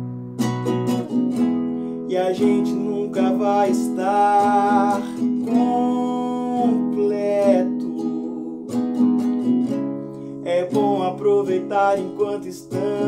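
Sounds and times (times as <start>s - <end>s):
nylon-string acoustic guitar: 0.0s - 13.0s
man singing a slow ballad: 1.9s - 8.9s, 10.3s - 13.0s.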